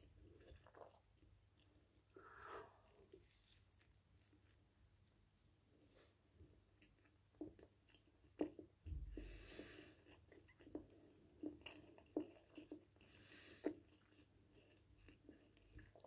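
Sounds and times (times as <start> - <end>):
person chewing with mouth closed: 6.7 - 16.0.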